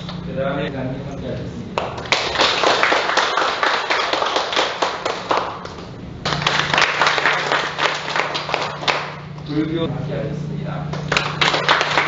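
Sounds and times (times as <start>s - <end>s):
people clapping: 1.8s - 9.5s, 10.9s - 12.0s.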